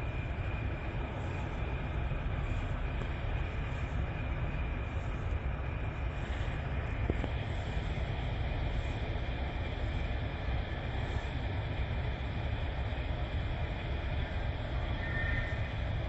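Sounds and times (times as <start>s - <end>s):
diesel truck engine rumbling: 0.0s - 16.0s
faint high whine: 0.0s - 16.0s.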